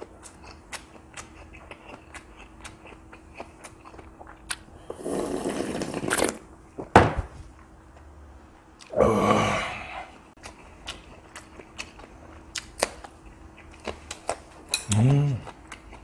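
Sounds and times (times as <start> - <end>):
wet chewing: 0.0 - 4.7, 10.4 - 16.0
slurping broth from bowl: 4.9 - 6.4.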